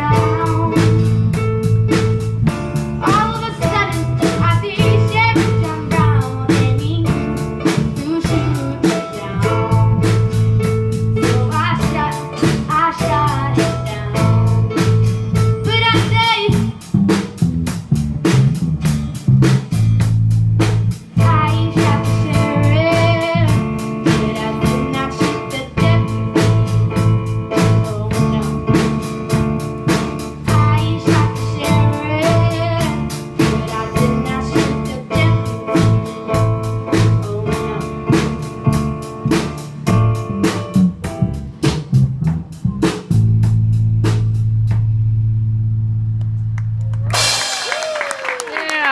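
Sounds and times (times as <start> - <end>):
girl singing: 0.0 - 2.2, 3.0 - 16.8, 21.1 - 38.9
band playing live: 0.0 - 45.4, 46.2 - 48.9.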